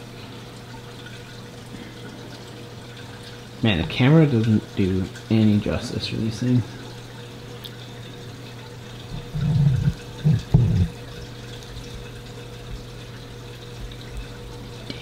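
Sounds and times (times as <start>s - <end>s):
low electrical hum: 0.0s - 15.0s
man murmuring: 9.3s - 10.9s.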